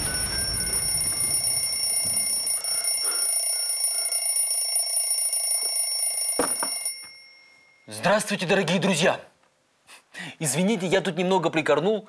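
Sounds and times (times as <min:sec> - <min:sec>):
mechanical alarm clock ringing: 0:00.0 - 0:08.0.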